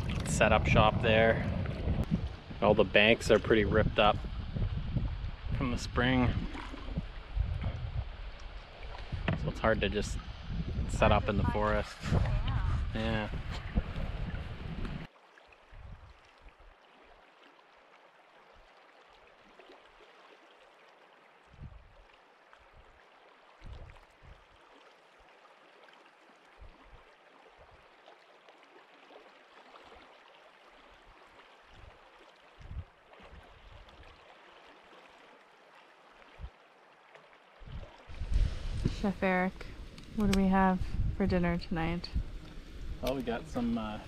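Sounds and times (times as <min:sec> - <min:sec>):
flowing river water: 0:00.0 - 0:44.0
low thumps on microphone: 0:09.0 - 0:15.1.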